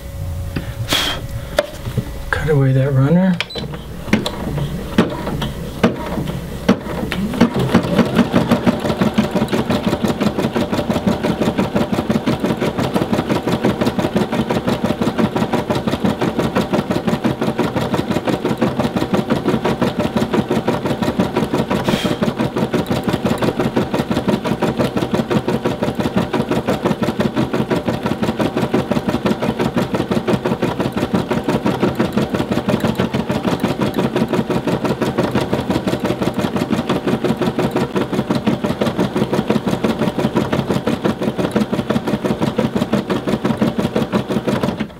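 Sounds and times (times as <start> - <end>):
embroidery machine stitching: 3.1 - 44.9
machine clicks: 19.9 - 25.3, 30.5 - 44.9.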